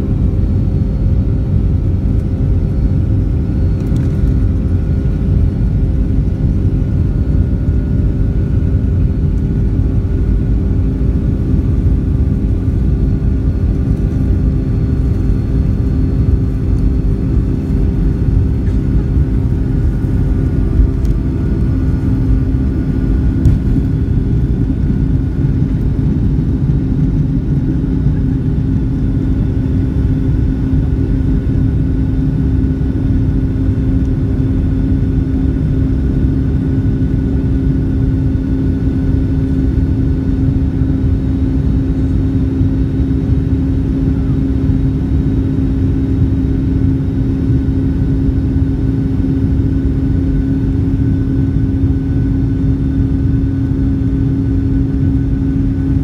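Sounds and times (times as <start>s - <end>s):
jet engines roaring: 0.0s - 35.3s.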